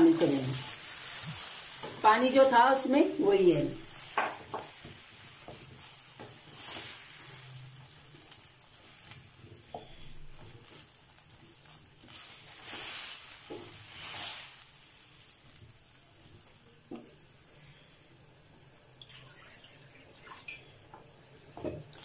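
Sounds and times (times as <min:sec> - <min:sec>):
oil sizzling in a pot: 0:00.0 - 0:22.0
wooden spatula scraping: 0:00.1 - 0:15.2.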